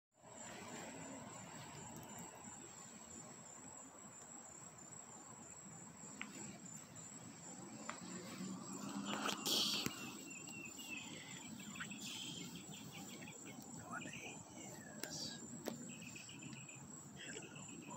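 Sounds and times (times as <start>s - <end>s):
crickets chirping: 0.2s - 17.9s
outdoor hiss: 0.2s - 17.9s
soft ticks: 1.7s - 2.4s, 13.5s - 16.7s.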